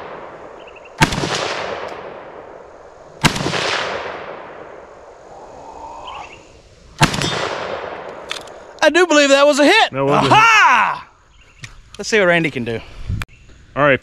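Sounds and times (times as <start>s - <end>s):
rifle shots with echo: 0.0s - 5.0s, 7.0s - 8.5s.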